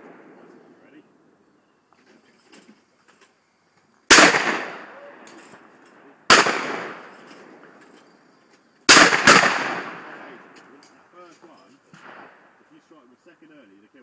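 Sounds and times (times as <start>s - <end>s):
shotgun shots with echo: 4.1s - 5.4s, 6.3s - 7.2s, 8.9s - 10.5s.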